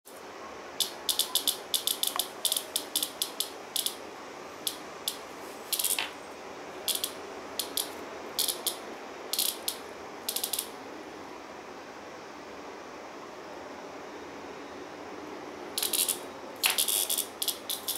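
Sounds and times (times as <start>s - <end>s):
cicada buzzing squawks: 0.8s - 10.8s, 15.8s - 17.9s.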